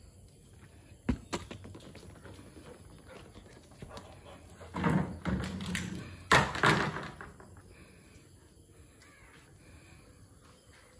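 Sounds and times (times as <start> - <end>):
ball knocking on paving stones: 1.0 - 2.3.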